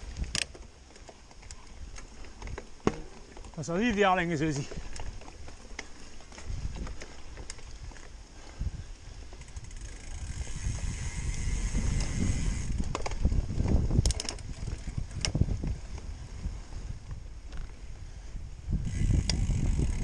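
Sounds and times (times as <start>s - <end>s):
bike tyres rumbling on dirt: 0.0s - 20.0s
bike clacking and rattling: 0.2s - 8.2s, 9.2s - 16.1s, 18.8s - 20.0s.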